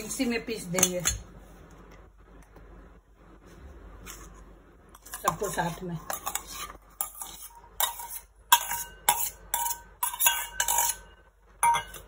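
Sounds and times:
metal spoon scraping steel bowl: 0:05.0 - 0:12.0.

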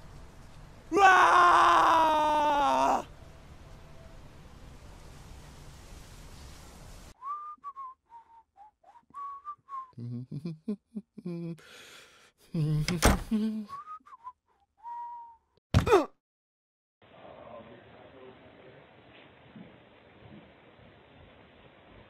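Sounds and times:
loud outburst: 0:00.9 - 0:03.1
person whistling a tune: 0:07.2 - 0:10.3, 0:13.6 - 0:15.6.

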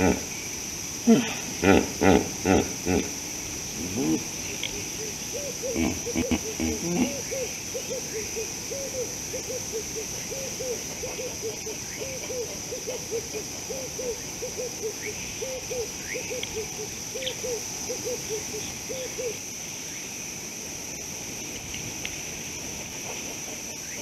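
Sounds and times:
high insect trill: 0:00.0 - 0:24.0
low hooting animal calls: 0:03.8 - 0:19.4.

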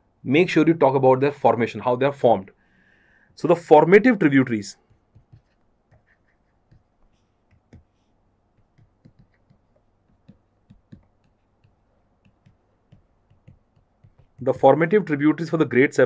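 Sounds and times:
stylus tapping on tablet screen: 0:04.8 - 0:15.1.

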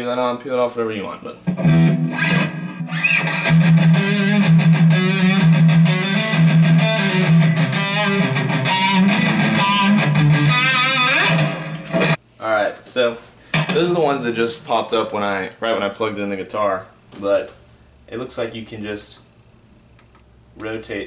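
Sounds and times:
electric guitar playing: 0:01.5 - 0:12.2, 0:13.6 - 0:13.9.

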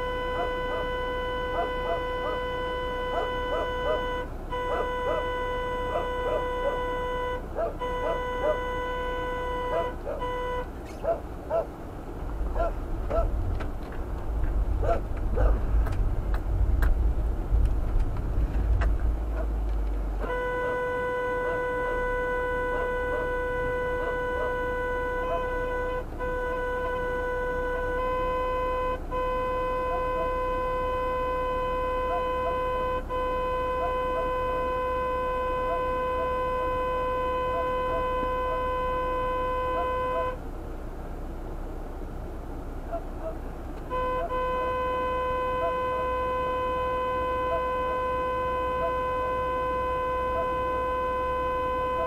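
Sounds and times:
held car horn honk: 0:00.0 - 0:11.8, 0:20.2 - 0:40.5, 0:42.9 - 0:52.0
vehicle rumbling over snow: 0:00.0 - 0:52.0
faint dog bark: 0:00.3 - 0:02.5, 0:03.1 - 0:06.9, 0:07.5 - 0:08.7, 0:09.7 - 0:10.3, 0:10.9 - 0:11.8, 0:12.5 - 0:13.4, 0:14.8 - 0:15.7, 0:19.3 - 0:19.6, 0:22.7 - 0:25.6, 0:32.0 - 0:32.7, 0:33.8 - 0:34.4, 0:39.7 - 0:40.4, 0:42.8 - 0:43.5.

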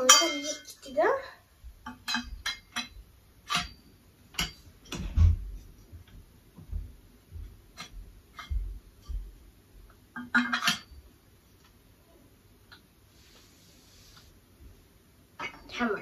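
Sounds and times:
steel tubes clinking and knocking: 0:00.0 - 0:00.9, 0:01.8 - 0:05.1, 0:10.2 - 0:11.0.

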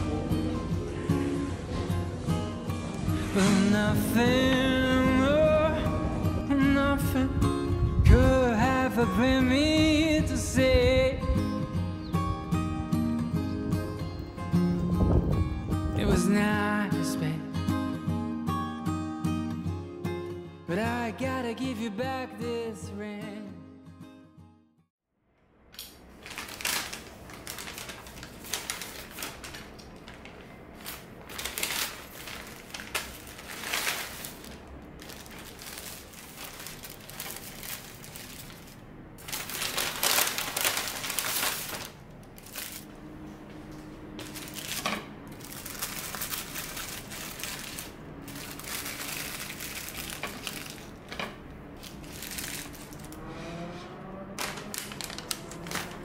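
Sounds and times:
parchment paper crinkling: 0:26.1 - 0:42.9, 0:44.2 - 0:53.3, 0:54.3 - 0:56.0.

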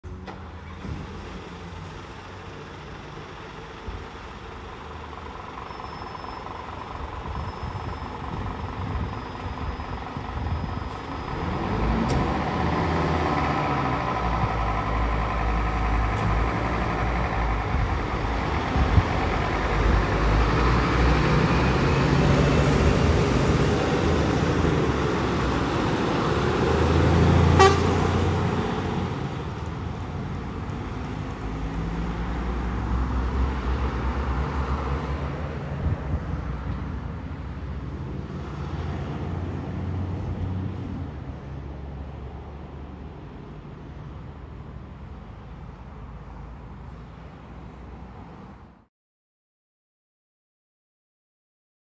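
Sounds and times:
diesel fire engines driving off: 0:00.0 - 0:48.8
horn blast: 0:27.5 - 0:28.2.

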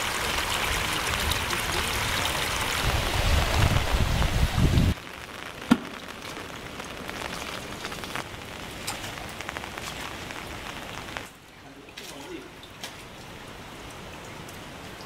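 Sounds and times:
light rain pattering: 0:00.0 - 0:15.0
rush of flowing water: 0:00.0 - 0:15.0
water drips: 0:05.4 - 0:15.0
sharp knock: 0:05.7 - 0:06.0.

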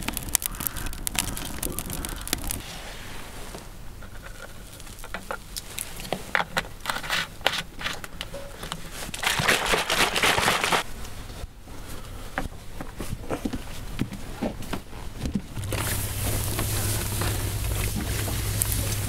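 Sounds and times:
water sloshing in shaken bottle: 0:09.0 - 0:10.8, 0:15.4 - 0:19.0.

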